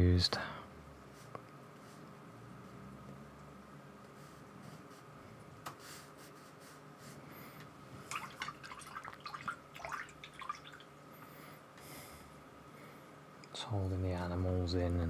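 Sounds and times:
small water splashes: 8.0s - 10.9s.

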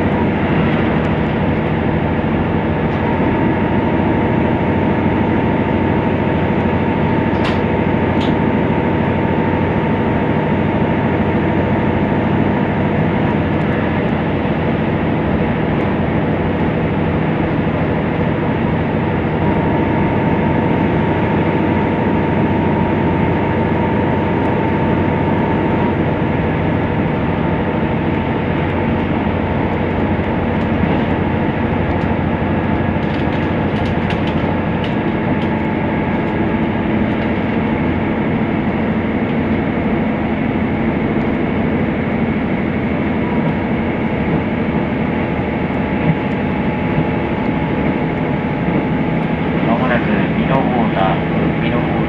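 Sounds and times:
railcar engine and wheels droning: 0.0s - 52.0s
thin steady whine: 34.5s - 52.0s.

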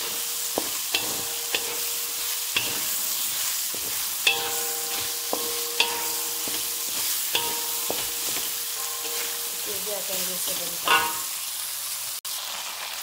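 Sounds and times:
spatula knocking against pan: 0.0s - 11.3s
wok ringing: 0.0s - 11.8s
food sizzling in a wok: 0.0s - 13.0s.

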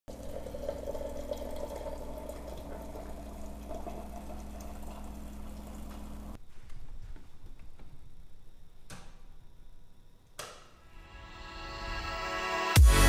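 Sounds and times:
machine pump humming: 0.1s - 6.4s
water pouring into a mug: 0.1s - 6.4s.

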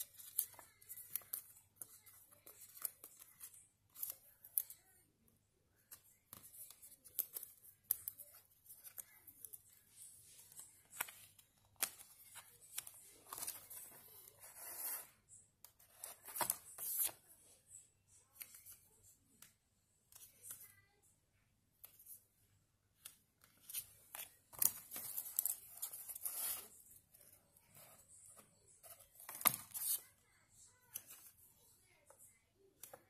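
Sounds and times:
paper rustling and scraping: 8.6s - 15.2s, 23.5s - 26.8s.

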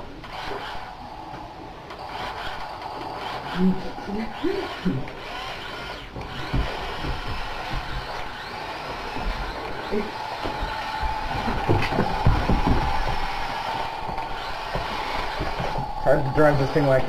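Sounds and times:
toy electric motors whirring: 0.0s - 17.0s
low knocks: 10.4s - 16.4s.

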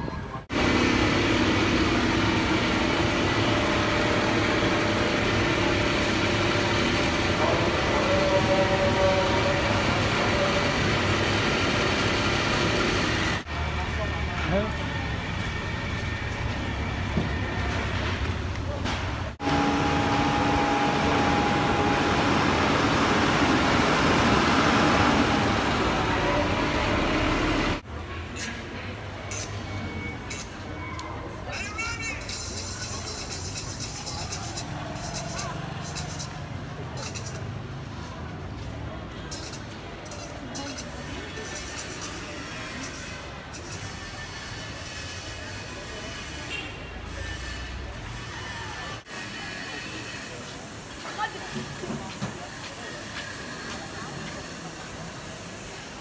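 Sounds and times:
concrete mixer engine humming: 0.5s - 27.8s
truck engine running: 15.0s - 27.8s.

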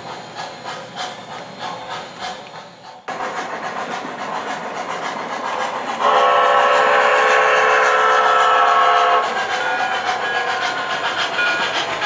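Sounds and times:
model train steam running noise: 0.0s - 12.0s
multi-tone steam whistle: 6.0s - 11.7s.

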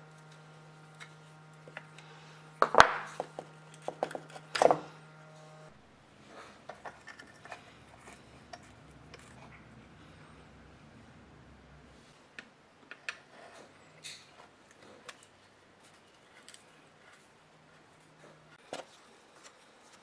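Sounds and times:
screwdriver and metal parts clattering: 6.4s - 10.3s.

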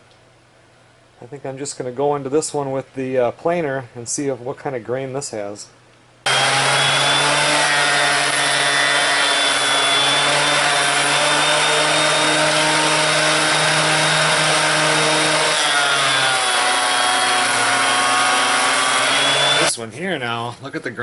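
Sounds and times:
jointer motor hum: 6.3s - 19.7s
wood shaving noise: 6.3s - 19.8s.

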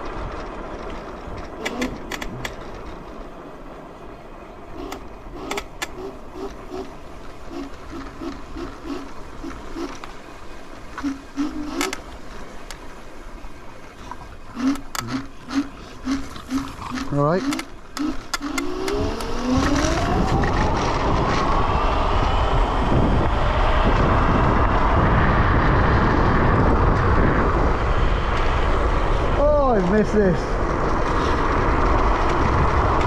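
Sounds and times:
scooter low rumble: 0.0s - 33.0s
sharp clicks: 1.6s - 2.6s, 4.8s - 6.9s, 11.0s - 12.0s, 14.6s - 20.6s.

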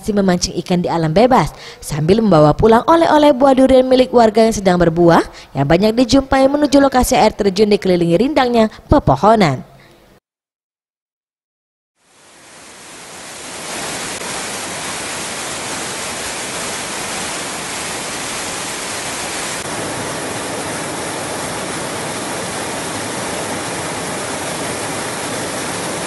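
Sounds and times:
waterfall splashing over rocks: 12.0s - 26.0s.

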